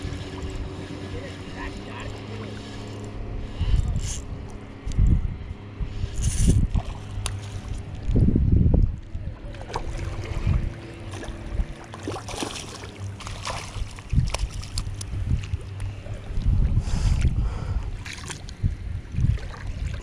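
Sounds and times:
wind buffeting microphone: 0.0s - 11.8s, 12.9s - 20.0s
fish splashing in water: 9.6s - 15.5s.

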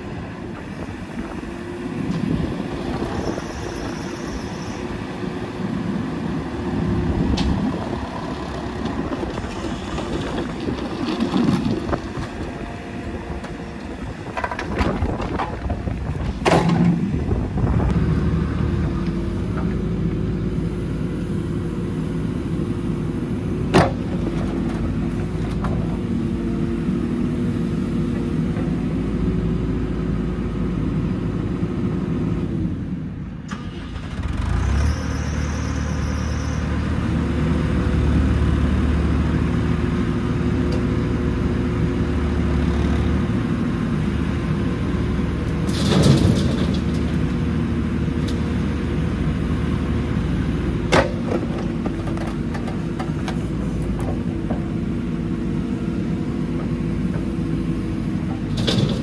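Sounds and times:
diesel engine under load: 0.0s - 59.0s.

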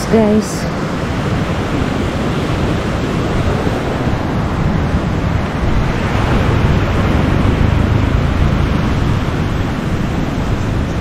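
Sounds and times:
sea surf breaking: 0.0s - 11.0s
wind rumbling on microphone: 0.0s - 11.0s.

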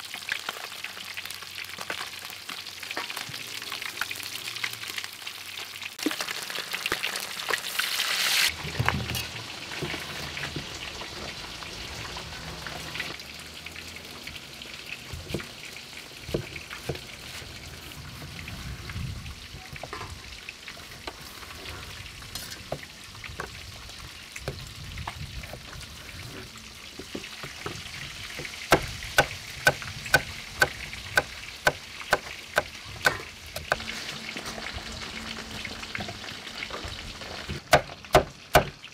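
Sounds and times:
fish deep-frying in hot oil: 0.0s - 38.9s.

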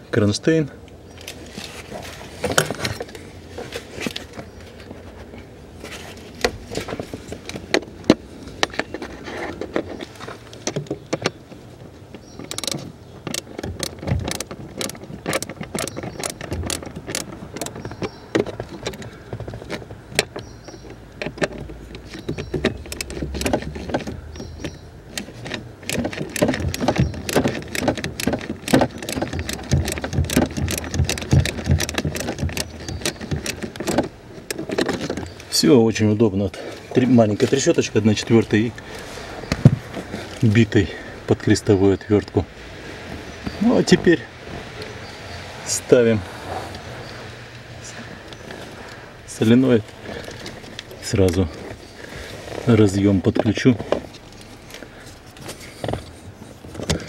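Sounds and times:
plastic parts knocking and rattling: 2.0s - 4.5s, 6.4s - 35.6s, 52.8s - 57.0s
ratchet clicking: 20.2s - 34.0s.

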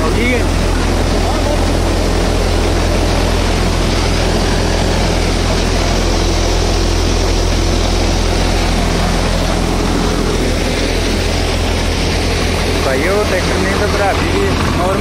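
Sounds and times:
threshing drum rattling: 0.0s - 15.0s
tractor diesel engine hum: 0.0s - 15.0s.

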